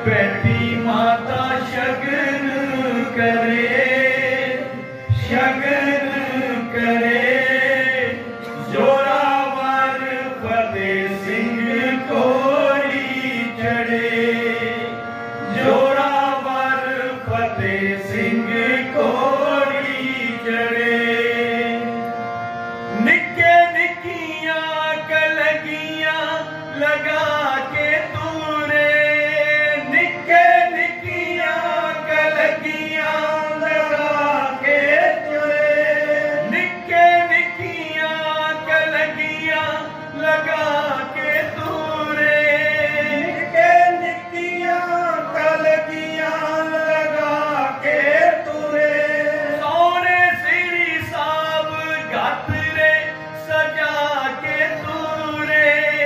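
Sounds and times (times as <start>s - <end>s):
harmonium chords: 0.0s - 56.0s
men singing: 0.0s - 56.0s.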